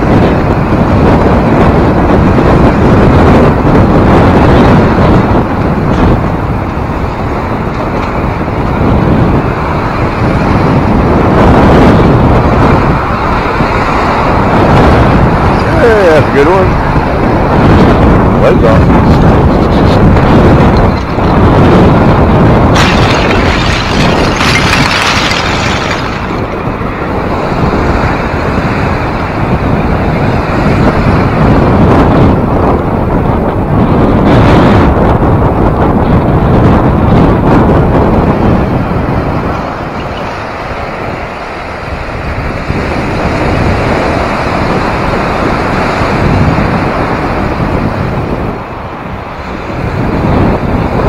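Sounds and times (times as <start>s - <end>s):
wind rumble on microphone: 0.0s - 51.0s
lake waves rushing: 12.1s - 17.1s, 20.9s - 30.6s
waves surging against ice: 22.7s - 26.7s.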